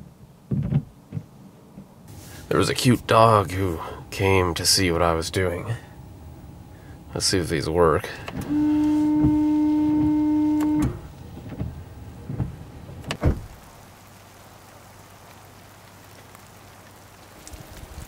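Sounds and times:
washer pump whining: 0:08.1 - 0:11.2
rain patter on a surface: 0:13.3 - 0:18.0.

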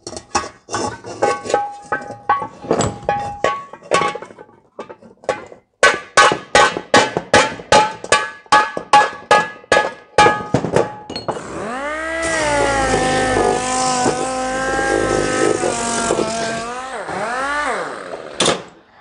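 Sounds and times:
motor starting with rising hum: 0:11.4 - 0:18.4.

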